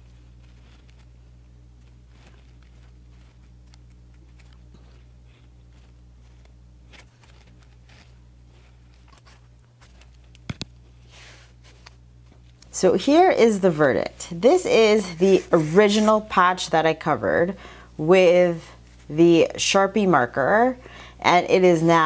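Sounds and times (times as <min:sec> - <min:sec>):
paintbrush dabbing on canvas: 0:00.0 - 0:09.3, 0:13.5 - 0:16.4
low electrical hum: 0:00.0 - 0:22.0.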